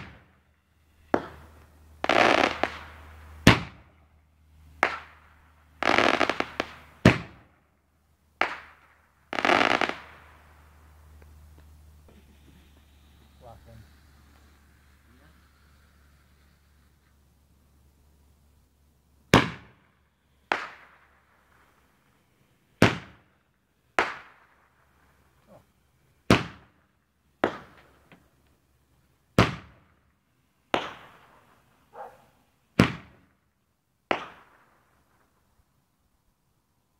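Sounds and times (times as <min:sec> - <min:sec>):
fireworks bangs: 0:00.0 - 0:07.6, 0:08.4 - 0:17.2, 0:19.3 - 0:23.3, 0:23.9 - 0:25.6, 0:26.2 - 0:26.8, 0:27.4 - 0:28.4, 0:29.3 - 0:30.0, 0:30.7 - 0:33.4, 0:34.1 - 0:35.5
faint firework pops: 0:01.0 - 0:03.9, 0:04.8 - 0:05.2, 0:08.4 - 0:10.2, 0:20.5 - 0:21.0, 0:24.0 - 0:24.4, 0:27.4 - 0:28.5, 0:29.4 - 0:30.0, 0:30.7 - 0:33.4, 0:34.1 - 0:35.3.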